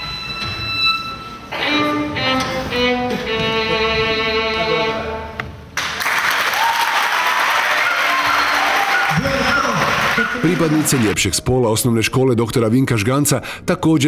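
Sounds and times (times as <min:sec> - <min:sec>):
solo violin: 0:00.0 - 0:05.4
applause: 0:05.8 - 0:11.2.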